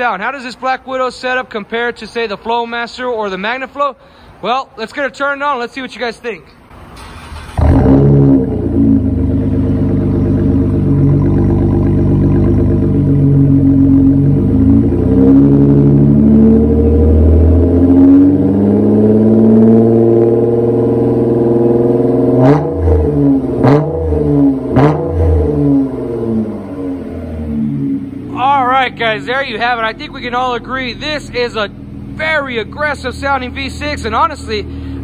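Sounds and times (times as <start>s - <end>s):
car engine revving: 7.0s - 35.0s
car engine idling with deep burble: 8.4s - 17.8s, 25.4s - 35.0s.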